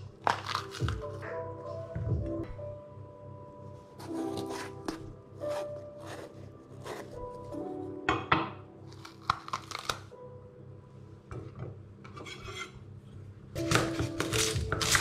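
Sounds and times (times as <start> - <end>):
knife slicing peppers: 0.2 - 1.1, 4.0 - 7.2, 13.6 - 15.0
knife scraping wooden board: 4.0 - 7.3, 12.2 - 12.8.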